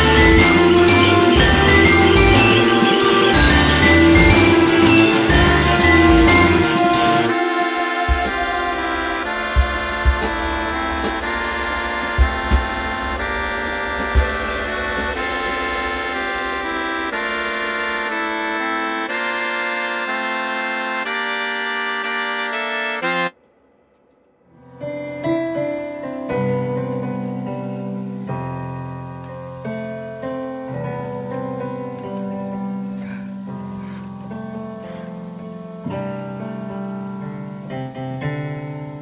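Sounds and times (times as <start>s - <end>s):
keyboard chords and bass notes: 0.0s - 23.3s
accordion-like music: 0.0s - 23.4s.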